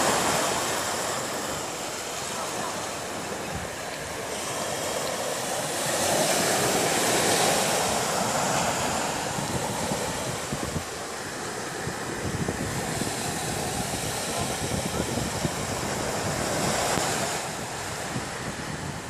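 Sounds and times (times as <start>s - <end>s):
small waves breaking on sand: 0.0s - 19.0s
surf surging: 0.0s - 19.0s
wind buffeting microphone: 6.6s - 19.0s.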